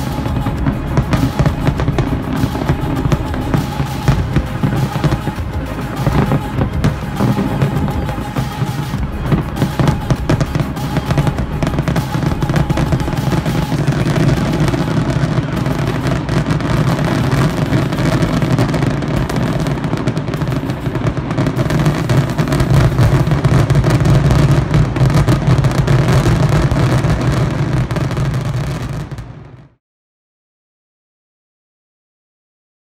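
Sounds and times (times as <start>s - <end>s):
fireworks barrage: 0.0s - 29.8s.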